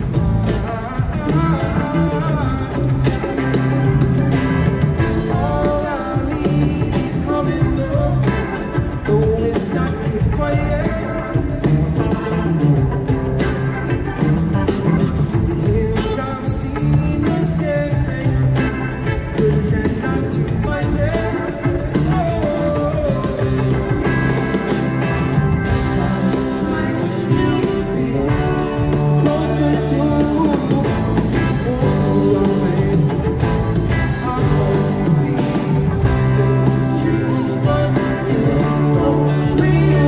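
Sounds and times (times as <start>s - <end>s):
electric guitar: 0.0s - 40.0s
rock band playing live: 0.0s - 40.0s
person singing: 5.0s - 13.1s, 15.2s - 24.1s, 25.6s - 40.0s.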